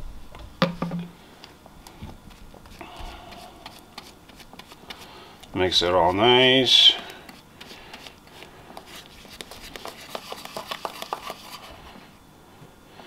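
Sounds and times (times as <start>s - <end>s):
brush scraping in plastic bowl: 8.8s - 11.8s.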